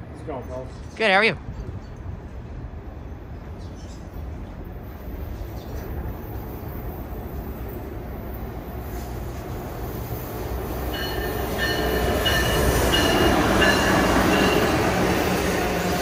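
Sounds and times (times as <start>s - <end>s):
electric train rumbling: 1.4s - 16.0s
train wheel squeal: 10.9s - 15.0s.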